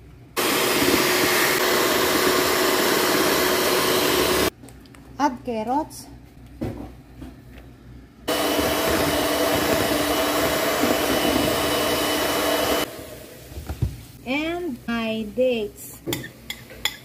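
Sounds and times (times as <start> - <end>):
electric mixer motor humming: 0.4 - 4.5, 8.3 - 13.2.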